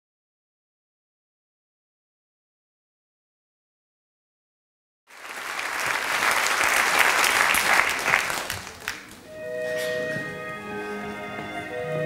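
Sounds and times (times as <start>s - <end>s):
audience applauding: 5.1s - 9.2s
music with long held notes: 9.3s - 12.0s.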